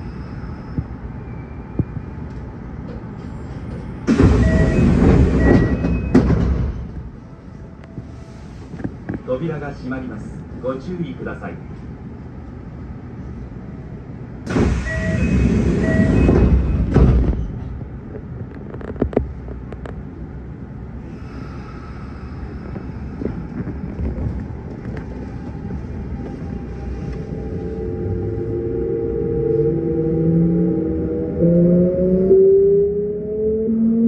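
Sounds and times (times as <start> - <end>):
loud rush of train noise: 0.0 - 32.3
steady train rumble: 0.0 - 33.3
short door beeps: 4.1 - 6.3, 14.5 - 17.0
rising traction motor whine: 24.8 - 34.0.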